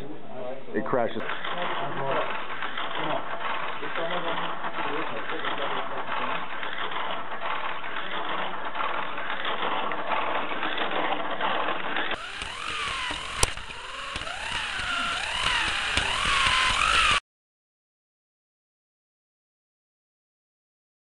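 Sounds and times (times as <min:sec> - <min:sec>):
slot car motor buzzing: 0:01.2 - 0:10.9, 0:11.9 - 0:17.2.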